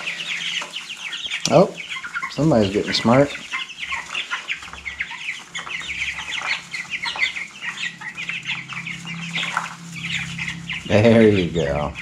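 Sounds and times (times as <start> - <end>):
chicks peeping: 0.0 - 12.0.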